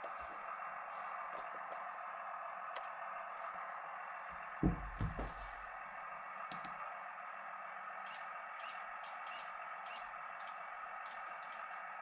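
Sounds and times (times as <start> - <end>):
mid-pitched hum: 0.0 - 12.0
dull handling knocks: 4.6 - 5.6
faint clicks: 9.9 - 11.9.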